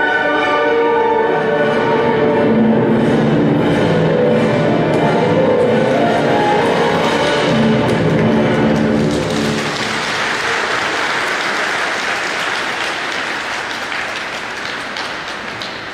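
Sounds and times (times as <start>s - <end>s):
program music: 0.8s - 9.8s
audience applause: 4.4s - 15.9s.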